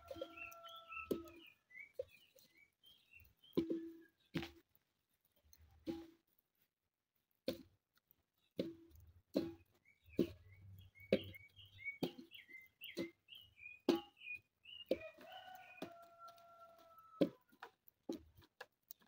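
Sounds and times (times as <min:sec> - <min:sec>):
birds chirping: 0:00.0 - 0:05.8, 0:08.4 - 0:17.5.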